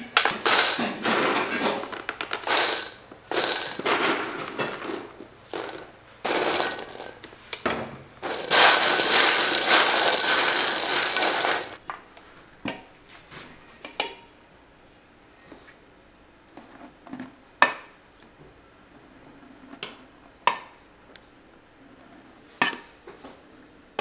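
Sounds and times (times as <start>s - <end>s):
snacks rattling in steel bowl: 0.1s - 7.3s, 8.2s - 11.8s.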